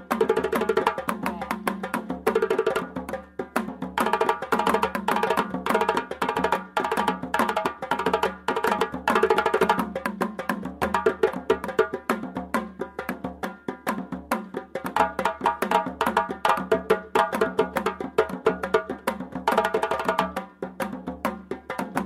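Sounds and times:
percussion-led music: 0.0s - 22.0s.

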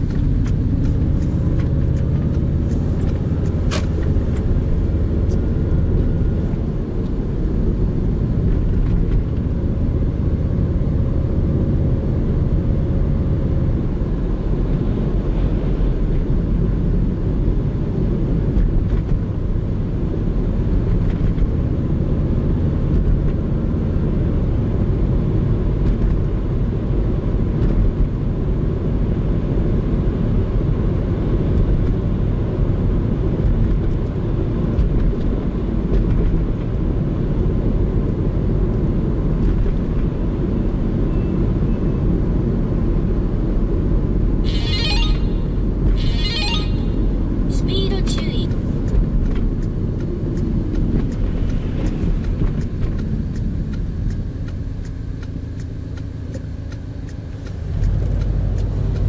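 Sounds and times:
car engine inside cabin: 0.0s - 59.0s.

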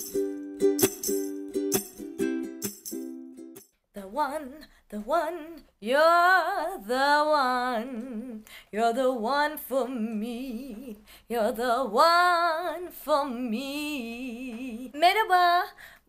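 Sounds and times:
woman singing pop melody: 4.0s - 16.0s.

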